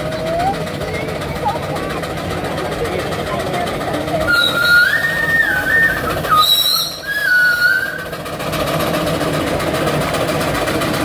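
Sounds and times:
steam whistle blasts: 4.3 - 8.1.

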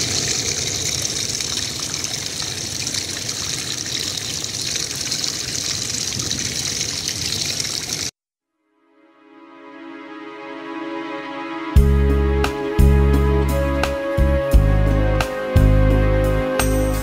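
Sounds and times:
stream trickling and splashing: 0.0 - 8.2.

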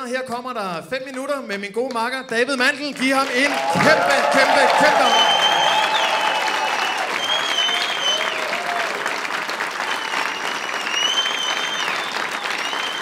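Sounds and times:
audience applauding: 3.0 - 13.0
high whistling tone: 5.0 - 8.5, 9.8 - 13.0.

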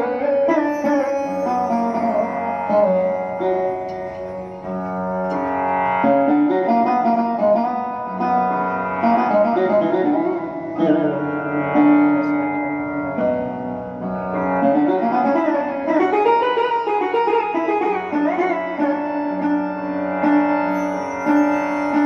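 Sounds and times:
held accompanying notes: 0.0 - 22.0
plucked string melody: 0.0 - 22.0.

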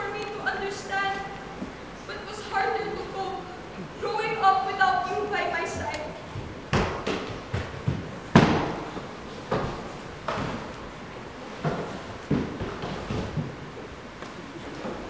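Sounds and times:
heavy thuds and knocks: 6.4 - 8.9.

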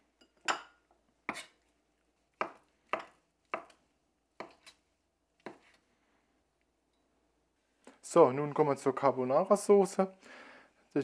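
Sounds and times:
knife chopping on wooden board: 1.3 - 1.6, 2.4 - 3.8, 5.4 - 5.8.

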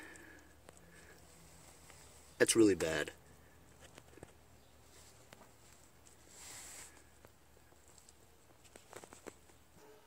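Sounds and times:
faint clicks: 0.0 - 2.0.

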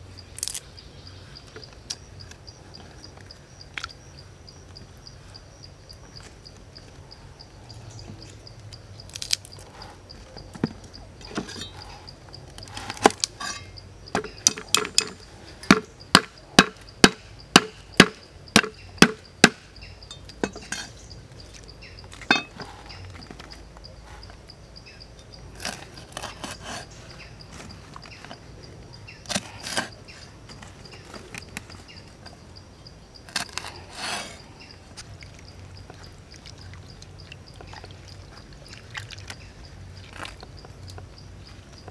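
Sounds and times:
knife chopping on wooden block: 15.7 - 19.6.

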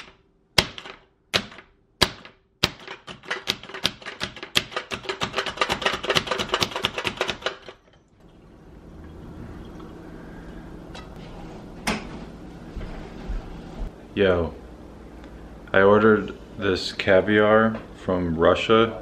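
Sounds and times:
food chopper clacking: 2.7 - 7.8.

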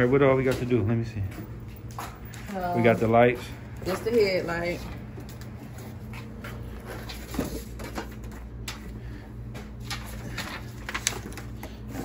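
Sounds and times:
steady low hum: 0.0 - 12.0
clicks and rustles of handling: 9.5 - 12.0.

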